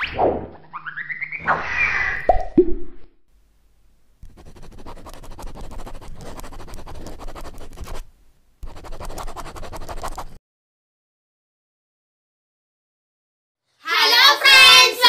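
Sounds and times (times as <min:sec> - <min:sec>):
marker pen scratching: 0:04.2 - 0:10.4.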